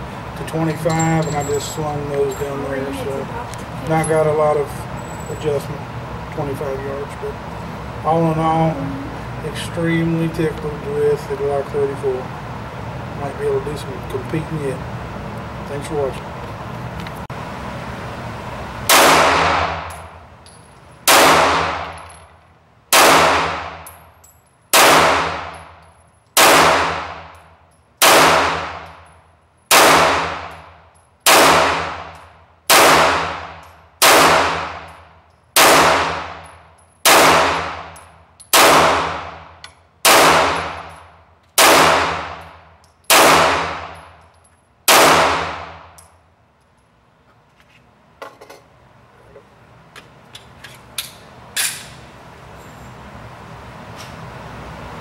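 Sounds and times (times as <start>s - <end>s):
pistol shots echoing indoors: 21.1s - 21.9s, 22.9s - 23.8s, 24.7s - 25.5s, 26.4s - 27.2s, 28.0s - 28.9s, 29.7s - 30.5s, 31.3s - 32.1s, 32.7s - 33.4s, 34.0s - 34.8s, 35.6s - 36.4s, 37.0s - 37.8s, 38.5s - 39.3s, 40.0s - 40.7s, 41.6s - 42.5s, 43.1s - 44.0s.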